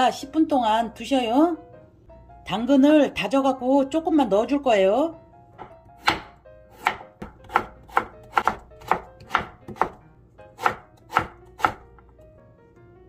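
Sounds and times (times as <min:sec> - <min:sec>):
knife chopping on wooden board: 0:05.6 - 0:10.0, 0:10.6 - 0:12.1.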